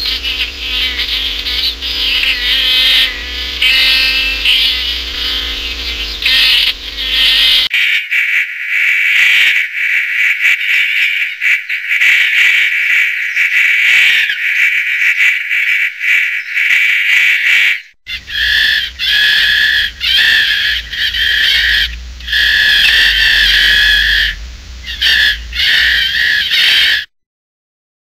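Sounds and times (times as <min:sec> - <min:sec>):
beaver hissing: 0:00.0 - 0:07.7, 0:18.1 - 0:27.1
high steady-pitched calls: 0:00.0 - 0:07.7, 0:18.1 - 0:27.1
low hum: 0:00.0 - 0:07.7, 0:18.1 - 0:26.5.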